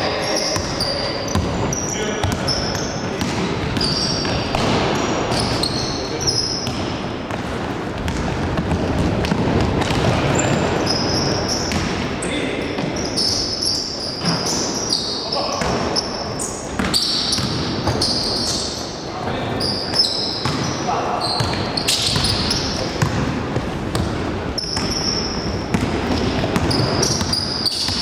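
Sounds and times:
sneakers squeaking: 0.0s - 28.0s
basketball bouncing on floor: 6.6s - 10.7s, 25.7s - 28.0s.

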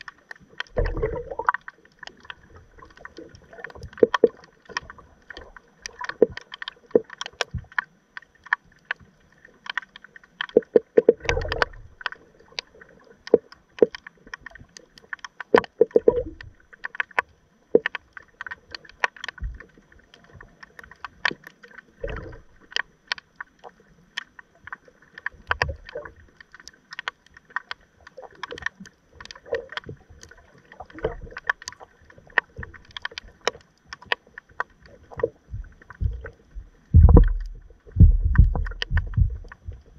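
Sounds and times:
underwater clicks and knocks: 0.0s - 39.9s
low underwater thumps: 35.2s - 39.9s.

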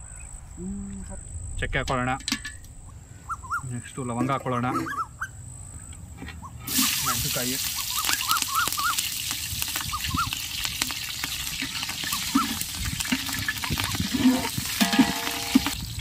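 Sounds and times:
chirping calls: 2.8s - 9.1s, 9.8s - 10.4s
spices sizzling in hot oil: 6.7s - 16.0s
ladle stirring in pot: 10.8s - 15.8s.

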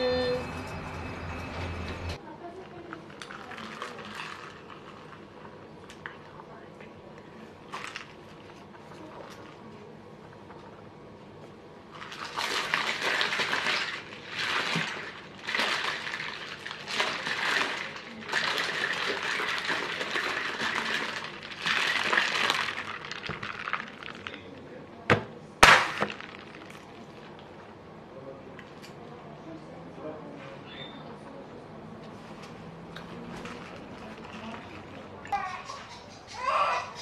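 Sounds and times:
paper and plastic wrapping crinkling: 12.0s - 24.6s.

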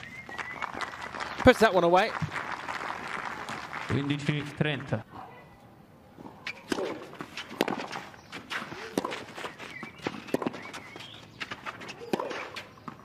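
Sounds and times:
tennis racket hitting ball: 6.2s - 13.0s.

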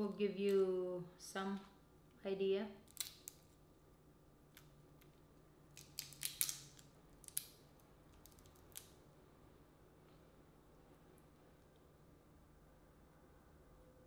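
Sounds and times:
shells cracking and snapping: 2.8s - 3.7s, 4.5s - 9.0s.

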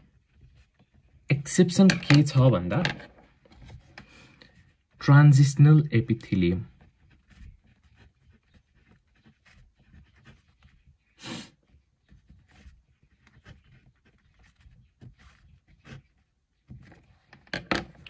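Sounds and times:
person breathing: 4.0s - 4.6s
pen writing on paper: 6.8s - 11.0s.

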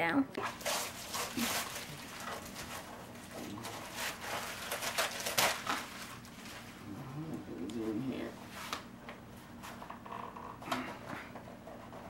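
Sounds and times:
wrapping paper crackling and ripping: 0.4s - 6.8s.

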